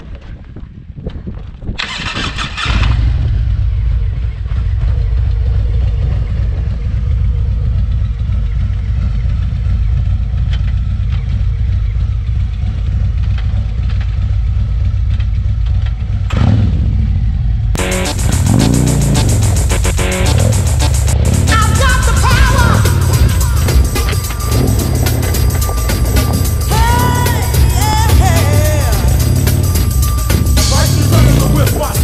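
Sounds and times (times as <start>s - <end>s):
motorcycle engine rumbling: 0.0s - 32.0s
music: 17.8s - 32.0s.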